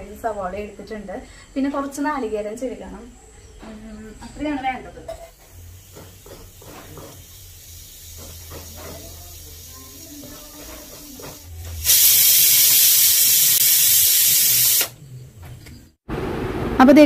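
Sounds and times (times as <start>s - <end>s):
faint kitchen clatter: 3.2s - 12.7s
pressure cooker steam hiss: 5.4s - 15.0s.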